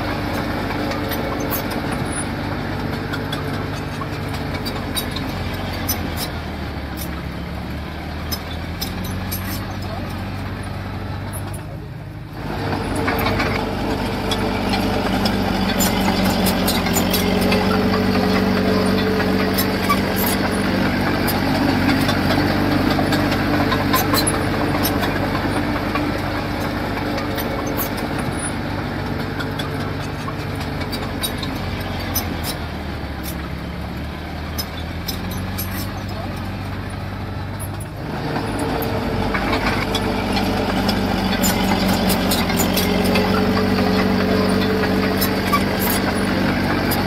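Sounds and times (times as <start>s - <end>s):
heavy machinery diesel engine: 0.0s - 47.0s
sharp clicks and clatter: 12.6s - 33.6s, 34.5s - 47.0s.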